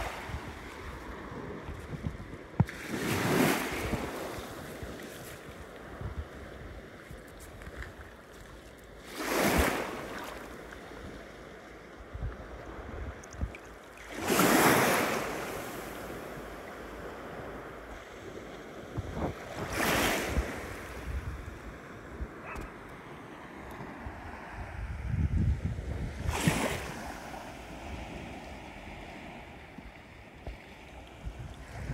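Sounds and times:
waves washing over shingle: 0:00.0 - 0:11.0, 0:13.7 - 0:16.6, 0:18.9 - 0:21.5, 0:26.1 - 0:29.5.

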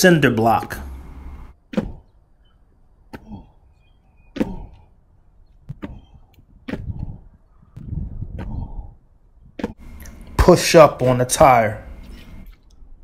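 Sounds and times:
shoes thudding on concrete: 0:05.6 - 0:07.2, 0:09.5 - 0:09.8.

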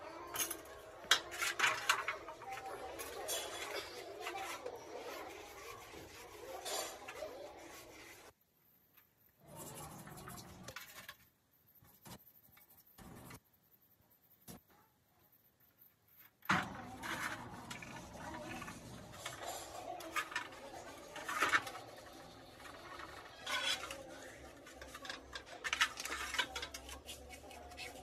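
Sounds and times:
metal parts clinking in steel basin: 0:00.2 - 0:02.2
scrubbing: 0:01.5 - 0:08.3, 0:16.9 - 0:28.0.

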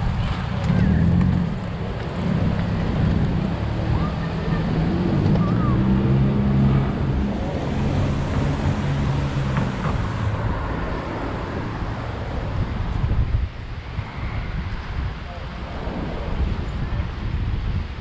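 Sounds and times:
car driving past: 0:00.0 - 0:12.8
city traffic: 0:00.0 - 0:18.0
wind rushing over microphone: 0:00.0 - 0:18.0.

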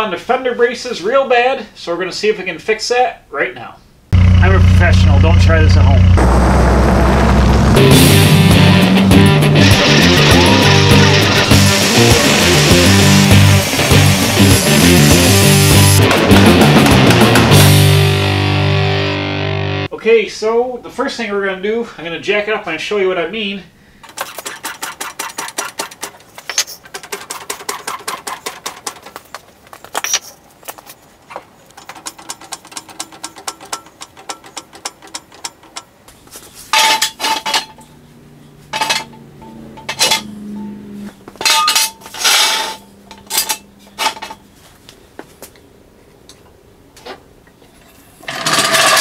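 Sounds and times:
metal jack stands clanking: 0:31.7 - 0:36.0, 0:36.7 - 0:38.0, 0:38.7 - 0:40.6, 0:41.4 - 0:44.4.

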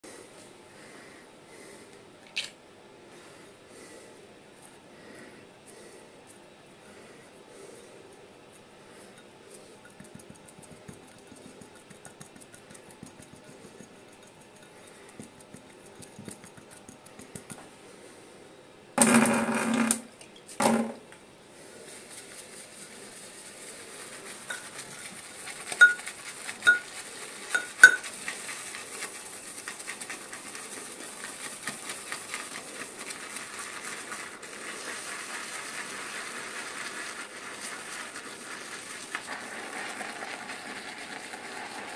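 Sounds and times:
brush swishing lather: 0:09.5 - 0:17.5, 0:21.6 - 0:41.9
brush knocking against bowl: 0:09.8 - 0:17.7, 0:24.4 - 0:28.2
fingers rubbing soap: 0:09.9 - 0:17.6, 0:23.1 - 0:41.9.

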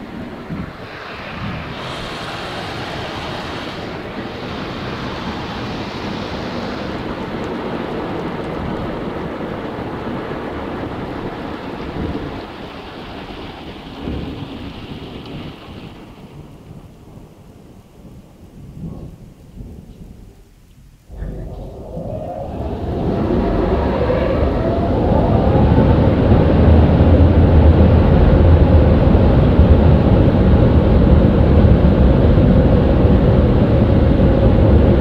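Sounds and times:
car wash water jets spraying: 0:00.0 - 0:17.2
spray hissing on car roof: 0:00.8 - 0:07.7.

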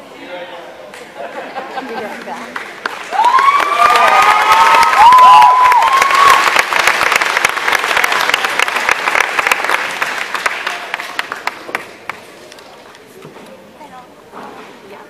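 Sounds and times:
audience applauding: 0:01.8 - 0:12.2
pitched cheers: 0:03.0 - 0:07.1.

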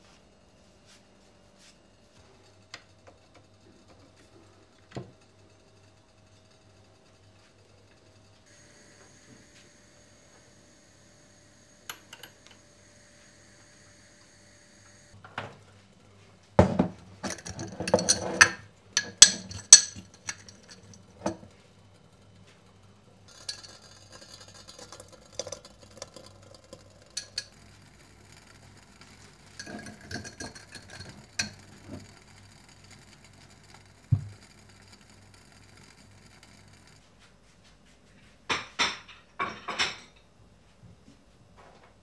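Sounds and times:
glassware and dishes clinking: 0:16.6 - 0:21.5, 0:23.3 - 0:27.6, 0:29.4 - 0:32.1, 0:38.5 - 0:40.2.

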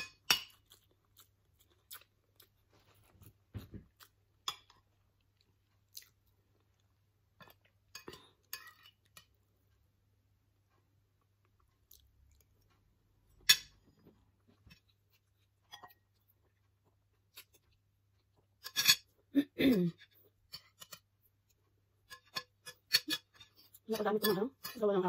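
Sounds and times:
close chewing: 0:00.4 - 0:08.3.

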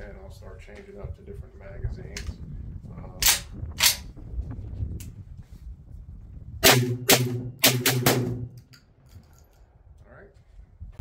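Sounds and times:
shotgun shots: 0:06.6 - 0:08.6.

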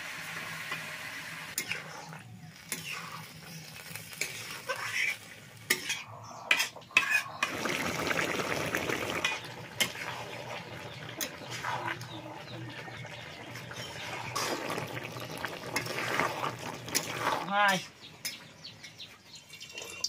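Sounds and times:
curry simmering and sizzling: 0:00.0 - 0:19.7
metal spatula scraping a pan: 0:01.5 - 0:07.5, 0:09.2 - 0:13.0, 0:13.7 - 0:14.8, 0:15.7 - 0:17.5.

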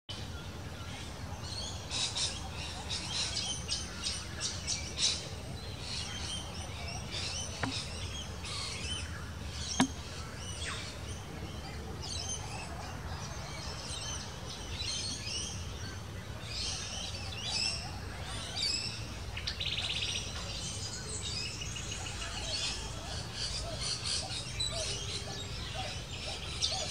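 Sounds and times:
wild birds chirping: 0:00.1 - 0:26.9
sharp click: 0:09.8 - 0:10.0.

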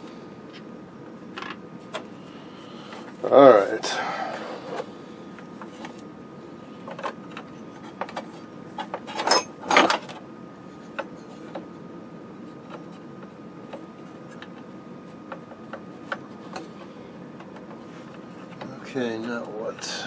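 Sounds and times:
metal parts clicking and tapping: 0:09.1 - 0:09.5.

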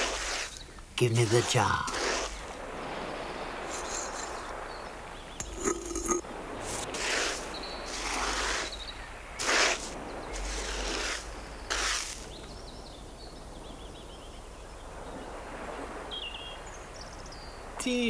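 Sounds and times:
sand being scraped by hand: 0:00.0 - 0:04.6, 0:05.4 - 0:12.4.

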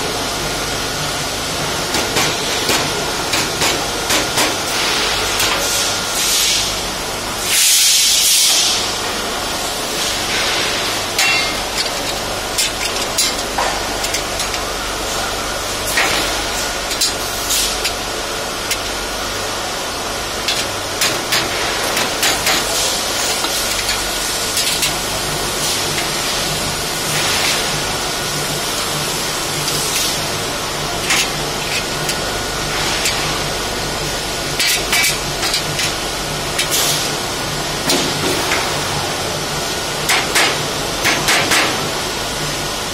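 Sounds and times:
steel shelving knocking and clinking: 0:11.2 - 0:14.6.

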